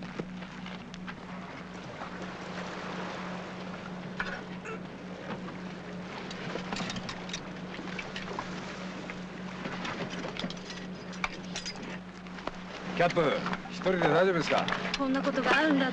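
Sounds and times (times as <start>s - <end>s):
diving gear knocks and clicks: 6.2s - 8.5s, 9.6s - 15.9s.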